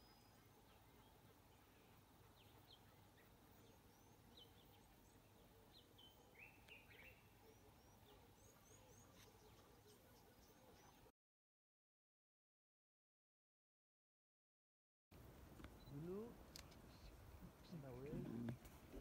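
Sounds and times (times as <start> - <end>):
birds chirping: 0.0 - 11.1, 15.2 - 19.0
quiet steady hiss: 0.0 - 11.1, 15.2 - 19.0.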